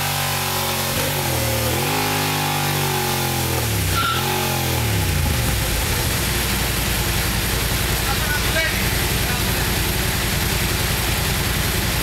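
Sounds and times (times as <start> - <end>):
motorcycle engine revving: 0.0 - 12.0
engine lumpy idle: 4.6 - 12.0.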